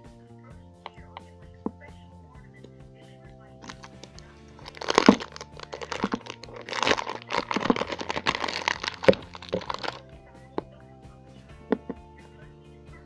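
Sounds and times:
plastic packaging crinkling and tearing: 0:03.6 - 0:10.0.

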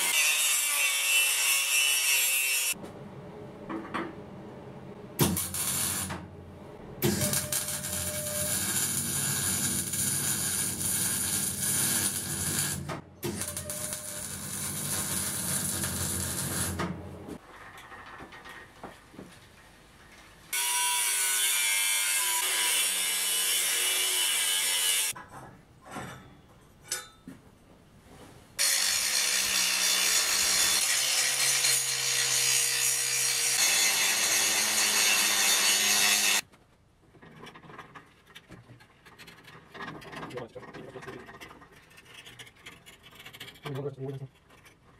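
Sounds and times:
electric welding crackling hiss: 0:05.2 - 0:06.1, 0:07.1 - 0:16.8
angle grinder grinding steel: 0:07.1 - 0:16.8.

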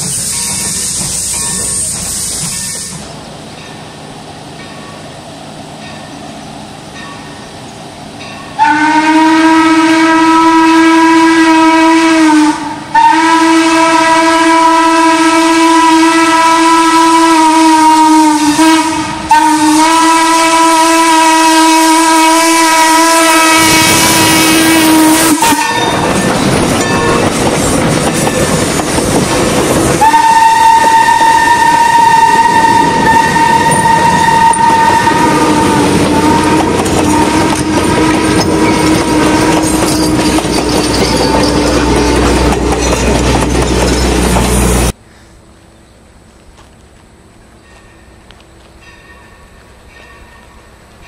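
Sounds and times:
steam whistle blowing: 0:00.0 - 0:03.1, 0:08.6 - 0:26.2, 0:30.0 - 0:40.5
train wheels clattering on rails: 0:00.0 - 0:05.2, 0:23.6 - 0:32.0, 0:32.6 - 0:45.0.

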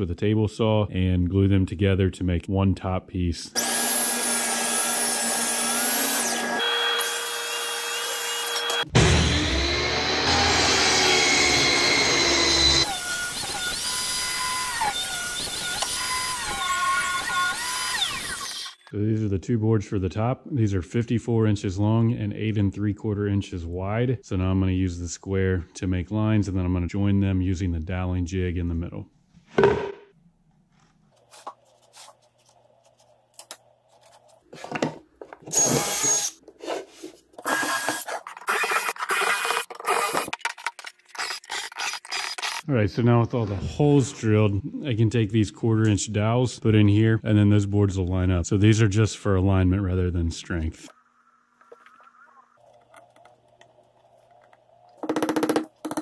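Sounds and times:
cordless drill boring wood: 0:03.6 - 0:18.8, 0:35.5 - 0:36.4, 0:37.4 - 0:40.4, 0:41.2 - 0:42.6, 0:55.0 - 0:56.0
table saw cutting wood: 0:03.6 - 0:18.8, 0:35.5 - 0:36.4.

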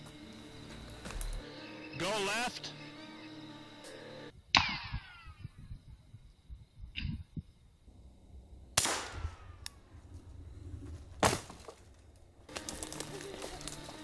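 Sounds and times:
gunshots: 0:08.8 - 0:09.4.

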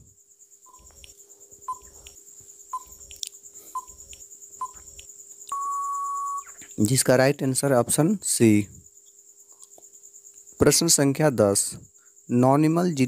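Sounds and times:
long loud beep: 0:05.5 - 0:06.5
short timer beeps: 0:05.5 - 0:06.5.

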